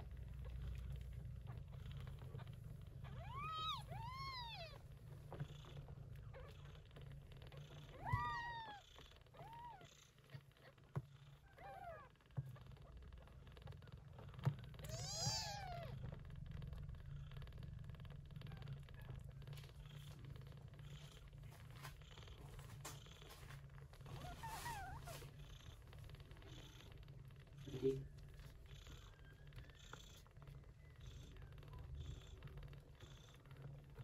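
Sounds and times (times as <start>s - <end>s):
low steady hum: 0.0s - 34.0s
kittens mewing: 2.3s - 4.8s, 14.8s - 16.0s.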